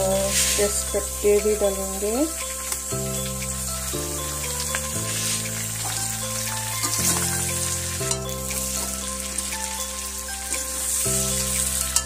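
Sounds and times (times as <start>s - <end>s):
background music chords: 0.0s - 12.0s
meat and onion sizzling in oil: 0.0s - 12.0s
spatula stirring and scraping: 2.5s - 9.7s.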